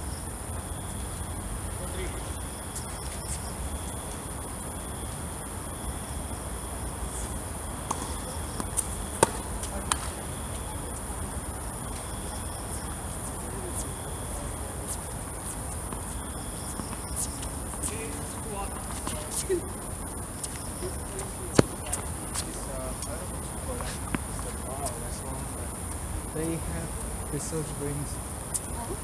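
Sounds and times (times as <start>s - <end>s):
insects chirring: 0.0s - 29.0s
tennis ball struck by rackets: 7.8s - 10.2s, 21.5s - 22.5s
ball bouncing on hard court: 7.9s - 10.2s, 21.2s - 22.5s.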